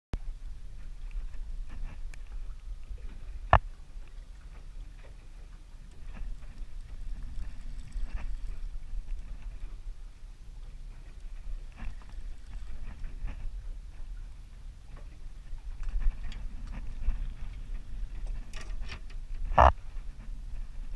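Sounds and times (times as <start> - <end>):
wind rumble on microphone: 0.2 - 20.9
light scattered ticks: 0.8 - 9.8, 10.6 - 14.2.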